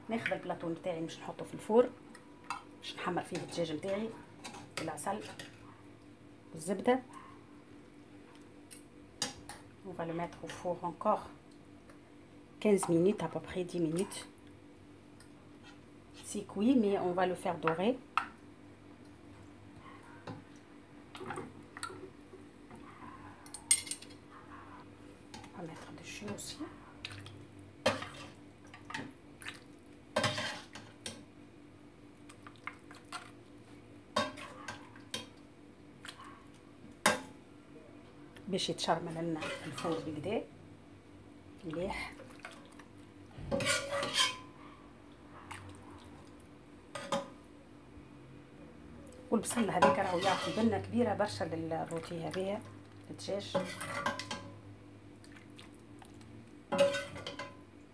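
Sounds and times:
metal ladle scraping a pot: 0:39.4 - 0:40.2, 0:43.5 - 0:44.5, 0:49.7 - 0:50.9.

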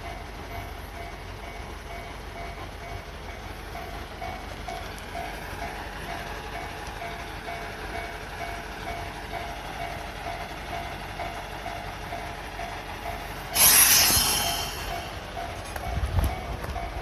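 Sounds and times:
diesel railcar idling: 0:00.0 - 0:17.0
air brake hiss: 0:13.4 - 0:15.2.

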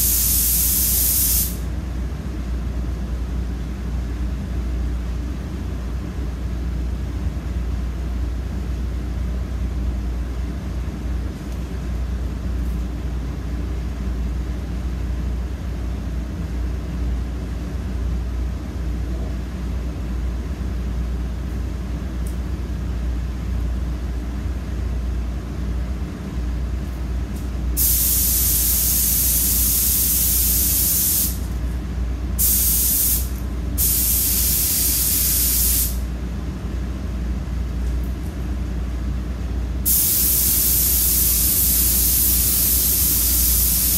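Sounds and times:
paint spray gun hissing: 0:00.0 - 0:01.6, 0:27.8 - 0:31.5, 0:32.4 - 0:36.0, 0:39.8 - 0:43.9
low machine hum: 0:00.0 - 0:43.9.

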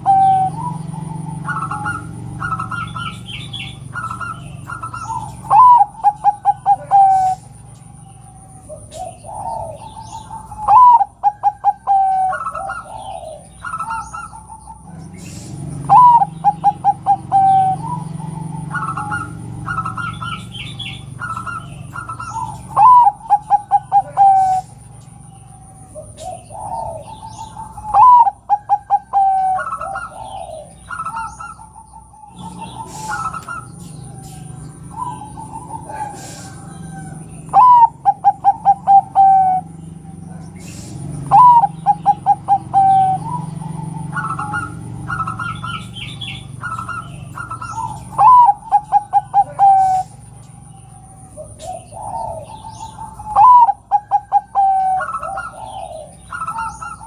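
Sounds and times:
dove song with staccato notes: 0:00.0 - 0:57.0.

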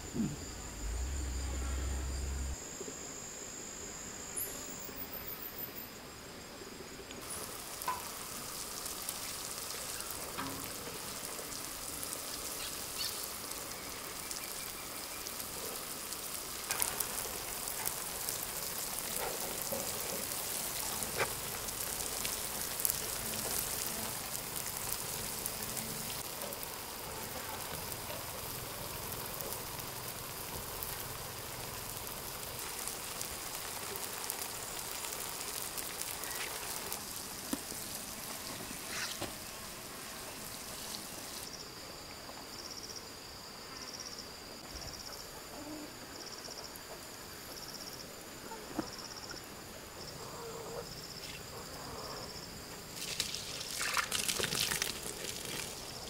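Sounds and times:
water sprinkling onto soil: 0:07.2 - 0:41.5, 0:52.8 - 0:56.0.

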